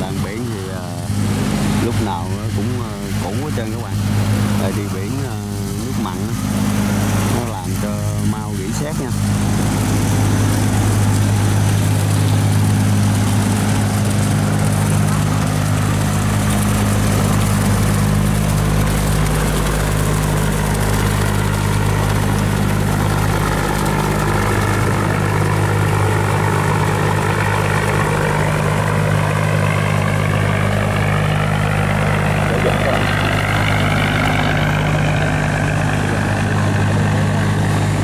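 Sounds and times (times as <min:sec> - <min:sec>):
barge diesel engine drone: 0:00.0 - 0:38.0
high rising whine: 0:00.0 - 0:38.0
water splashing: 0:00.0 - 0:38.0.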